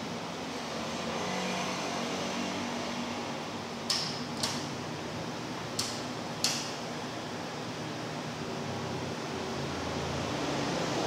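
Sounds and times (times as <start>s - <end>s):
fan-like hum: 0.0s - 11.0s
circuit breaker toggles clicking: 3.8s - 4.8s, 5.7s - 6.8s.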